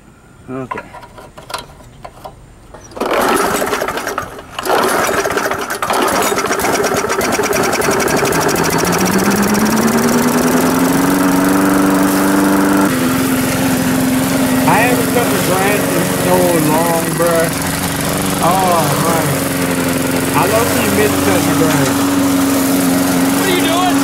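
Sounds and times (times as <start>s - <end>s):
lawn mower engine starting: 0.6s - 24.0s.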